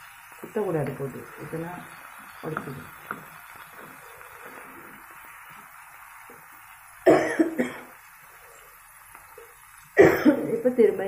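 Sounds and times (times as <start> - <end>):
fish sizzling in a pan: 0.0 - 11.0
person coughing: 7.1 - 7.9, 10.0 - 10.5.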